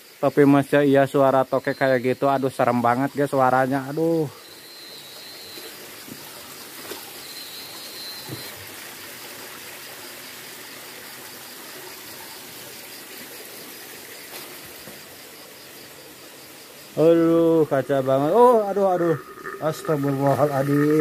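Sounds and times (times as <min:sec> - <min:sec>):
high pulsing insect call: 0:00.0 - 0:21.0
water trickling over rock: 0:17.2 - 0:21.0.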